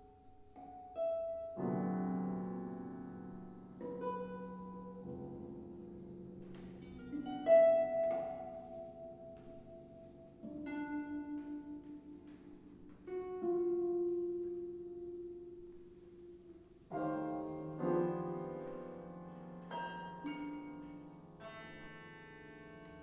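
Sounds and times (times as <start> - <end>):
contemporary chamber music: 0.0 - 23.0.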